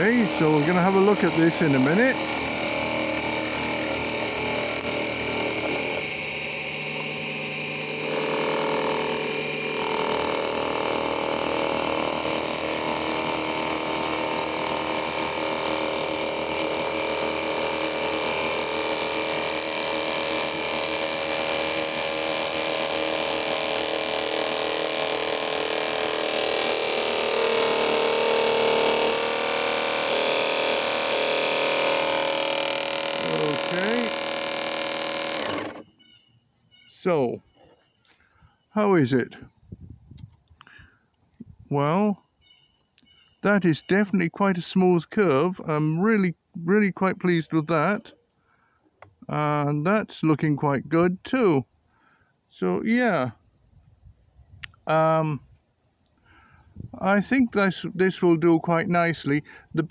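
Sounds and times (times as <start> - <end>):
lathe tool turning wood: 0.0 - 36.0
small lathe motor running: 0.0 - 36.1.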